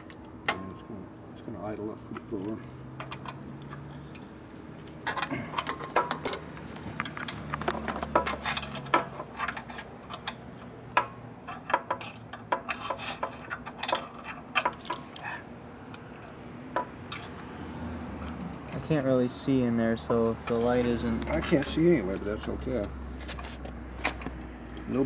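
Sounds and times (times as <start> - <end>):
light metallic clicks and taps: 23.6 - 25.0.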